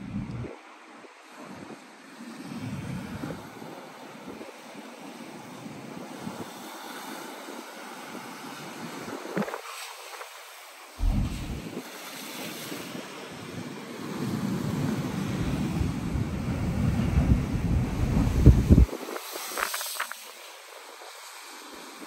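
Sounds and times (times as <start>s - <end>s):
sea surf rushing over rocks: 5.8s - 21.1s
wind buffeting microphone: 11.0s - 11.9s, 15.4s - 19.2s.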